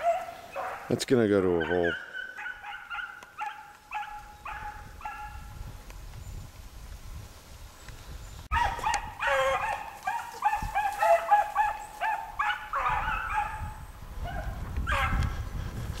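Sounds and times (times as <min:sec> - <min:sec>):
hounds baying: 0:00.0 - 0:05.4, 0:08.5 - 0:15.3.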